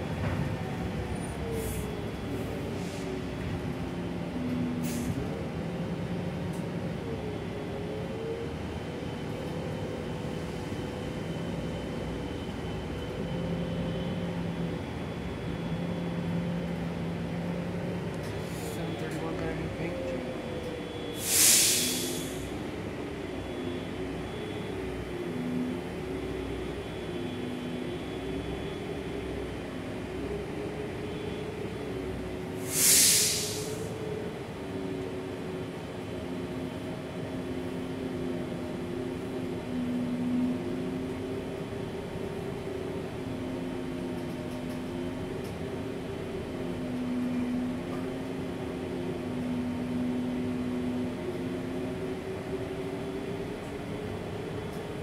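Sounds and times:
bus engine humming: 0:00.0 - 0:55.0
compressed air hissing: 0:21.2 - 0:22.5, 0:32.6 - 0:33.9.

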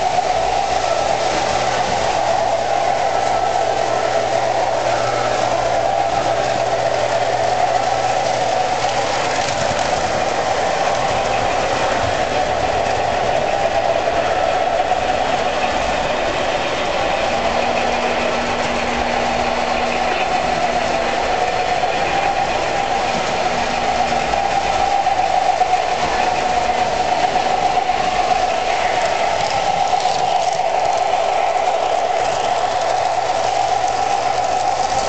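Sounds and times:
low hum: 0:00.0 - 0:35.0
model train motors whirring: 0:00.0 - 0:35.0.

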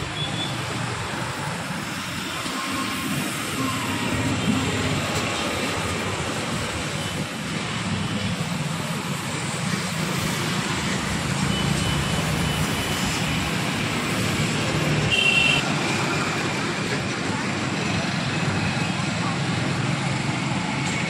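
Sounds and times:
street traffic hiss and engine hum: 0:00.0 - 0:21.0.

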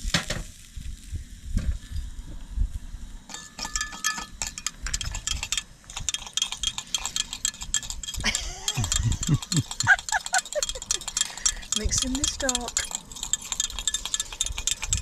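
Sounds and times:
metal spoon clinking against container: 0:03.3 - 0:15.0.

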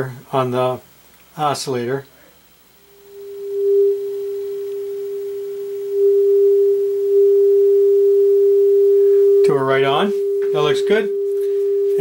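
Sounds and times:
radio test tone: 0:03.0 - 0:12.0.

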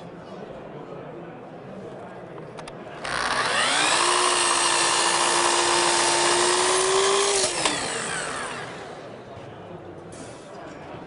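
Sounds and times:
saw blade cutting wood: 0:03.0 - 0:09.0
miter saw motor running: 0:03.0 - 0:09.1.

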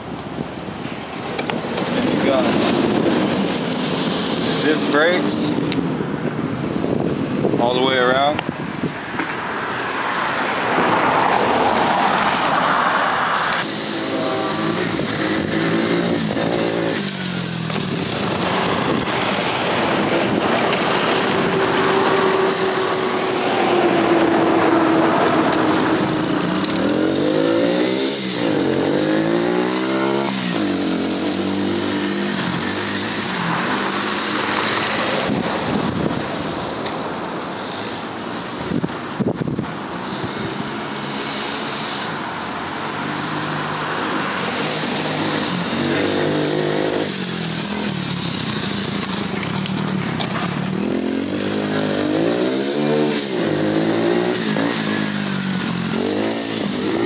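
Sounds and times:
quad bike engine running: 0:13.6 - 0:23.8, 0:24.8 - 0:36.5, 0:42.9 - 0:57.0.

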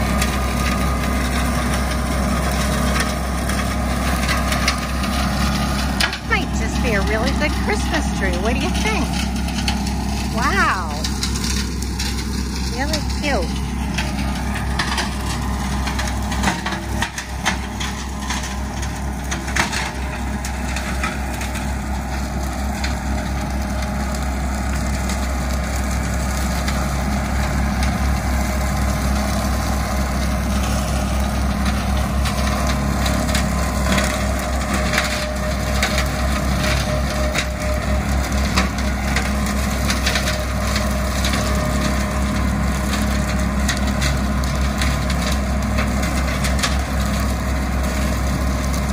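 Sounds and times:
tractor engine rumble: 0:00.0 - 0:48.9
wood cracking and snapping: 0:31.6 - 0:37.6, 0:38.2 - 0:48.9.

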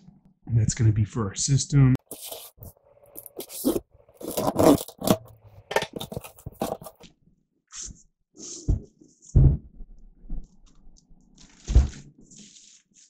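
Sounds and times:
cardboard flaps scraping: 0:02.0 - 0:05.3, 0:06.0 - 0:07.0, 0:11.4 - 0:13.0
knife slitting packing tape: 0:02.1 - 0:05.3.

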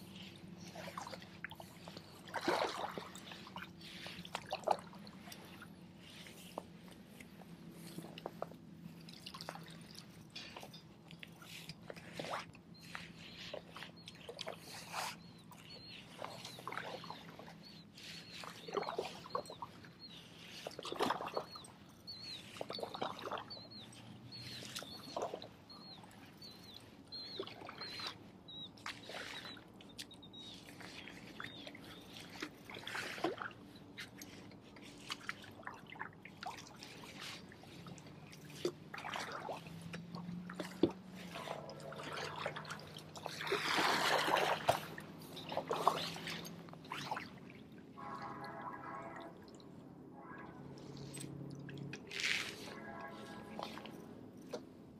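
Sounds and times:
paddle strokes in water: 0:00.0 - 0:54.9
water dripping off paddle: 0:00.7 - 0:05.7, 0:28.8 - 0:54.6
faint high chirp: 0:12.2 - 0:35.5, 0:41.2 - 0:47.2.

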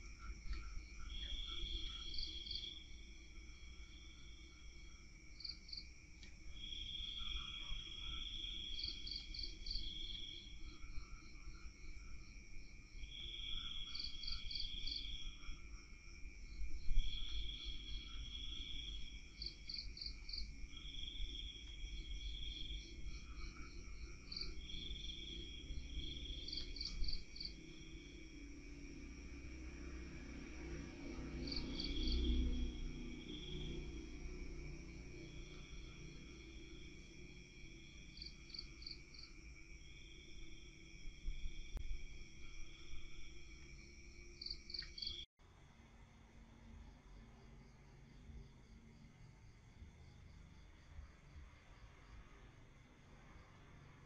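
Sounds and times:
insects chirping and trilling: 0:00.0 - 0:45.3.

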